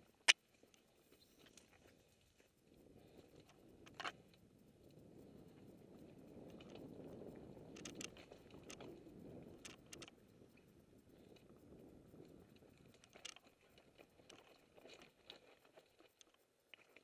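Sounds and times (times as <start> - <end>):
bike and stones clicking and rattling: 6.0 - 10.5, 11.3 - 17.0.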